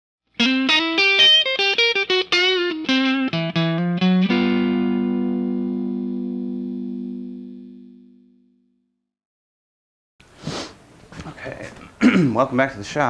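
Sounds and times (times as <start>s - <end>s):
plucked guitar notes: 0.4s - 8.7s
guitar chord ringing: 0.4s - 8.8s.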